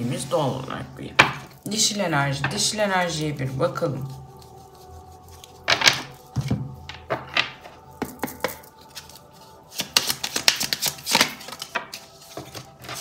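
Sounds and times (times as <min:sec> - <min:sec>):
cards being shuffled: 0:05.5 - 0:13.0.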